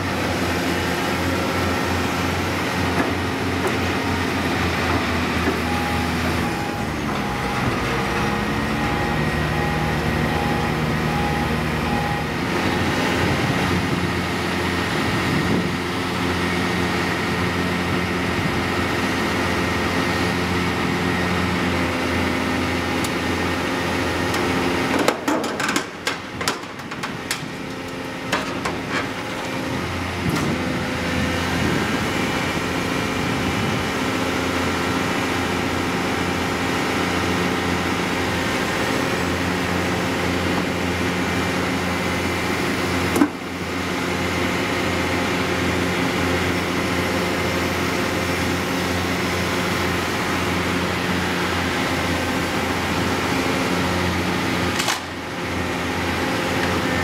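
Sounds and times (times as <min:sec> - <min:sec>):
excavator diesel engine running: 0:00.0 - 0:57.0
sharp knocks and clatters: 0:24.9 - 0:27.5.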